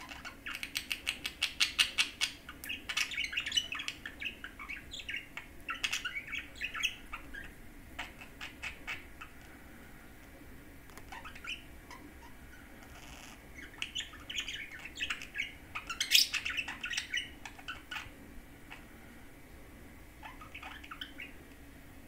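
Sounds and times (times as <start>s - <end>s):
budgerigar chirps and clicks: 0.0s - 9.3s.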